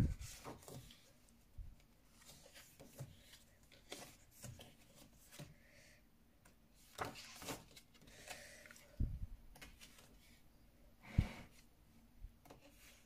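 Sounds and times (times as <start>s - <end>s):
pages rustling and flicking: 6.8s - 8.5s.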